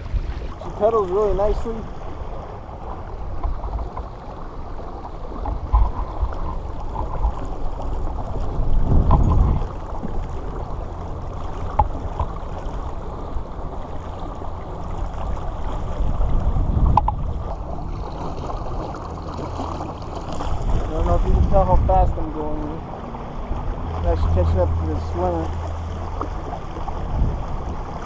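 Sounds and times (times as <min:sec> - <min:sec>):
water swishing along hull: 0:00.0 - 0:28.0
low rumble: 0:14.6 - 0:28.0.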